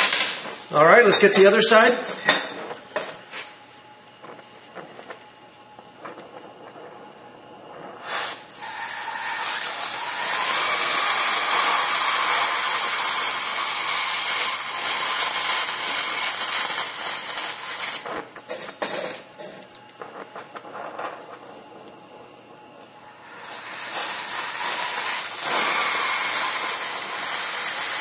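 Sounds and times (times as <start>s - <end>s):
cutting torch hissing: 4.2s - 28.0s
short crackles: 19.6s - 28.0s.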